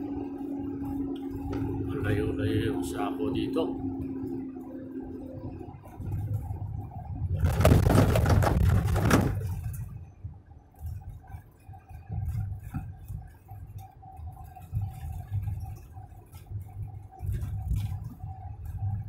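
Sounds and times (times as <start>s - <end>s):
engine and road rumble: 0.0s - 19.0s
steady thin whine: 0.0s - 19.0s
loud rush of noise: 6.0s - 9.6s.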